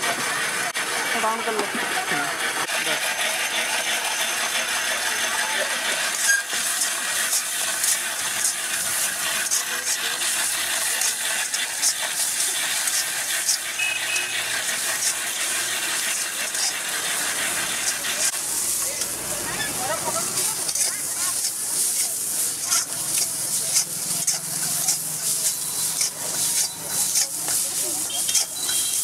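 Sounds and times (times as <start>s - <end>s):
vegetables sizzling in a wok: 0.0s - 29.0s
metal spatula scraping a pan: 6.0s - 29.0s.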